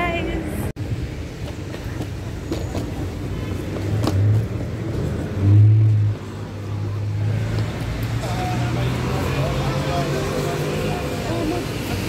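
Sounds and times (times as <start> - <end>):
vehicle engine passing by: 3.9 - 12.0.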